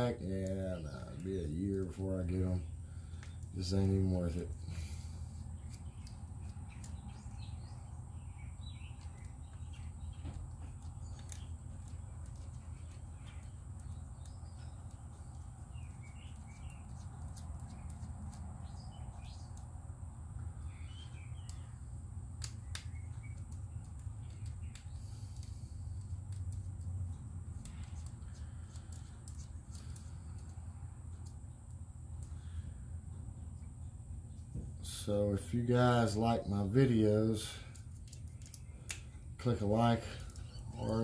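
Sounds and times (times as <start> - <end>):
steady low hum: 0.0 - 41.0
faint bird chirps: 20.4 - 22.0, 27.1 - 41.0.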